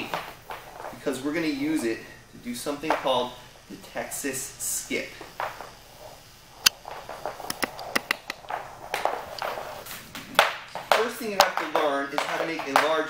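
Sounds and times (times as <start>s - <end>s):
footsteps on wooden floor: 5.2s - 13.0s.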